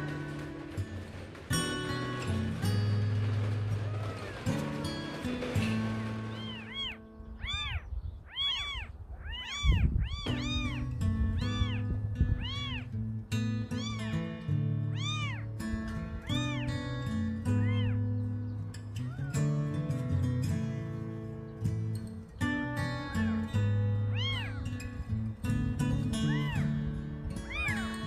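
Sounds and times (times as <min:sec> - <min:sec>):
kitten meowing: 0:06.3 - 0:12.9, 0:13.7 - 0:14.1, 0:14.9 - 0:15.5, 0:16.2 - 0:16.7, 0:17.5 - 0:18.0, 0:24.1 - 0:24.8, 0:26.2 - 0:26.7, 0:27.4 - 0:28.0.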